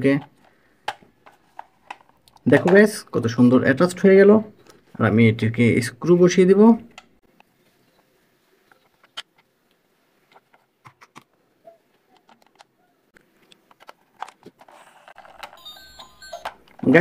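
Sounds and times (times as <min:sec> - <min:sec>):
plastic toy parts clicking: 0:00.1 - 0:02.8, 0:12.1 - 0:12.7, 0:13.5 - 0:17.0.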